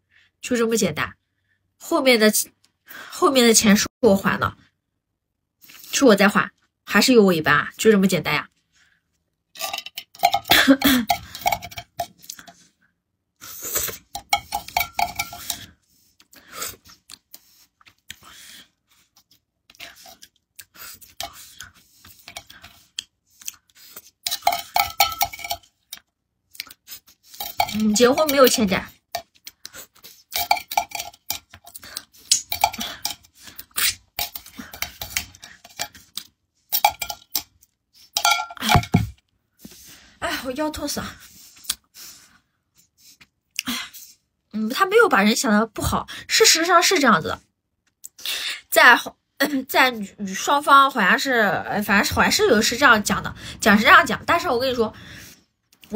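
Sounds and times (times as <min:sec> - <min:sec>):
metal can clicking and clinking: 0:09.6 - 0:12.2, 0:14.1 - 0:15.6, 0:24.3 - 0:25.7, 0:27.4 - 0:28.4, 0:30.3 - 0:31.7, 0:32.3 - 0:36.0, 0:36.7 - 0:37.5, 0:38.2 - 0:39.1
woman coughing: 0:10.4 - 0:11.2
spoon scraping inside metal can: 0:13.8 - 0:15.7, 0:27.3 - 0:28.4.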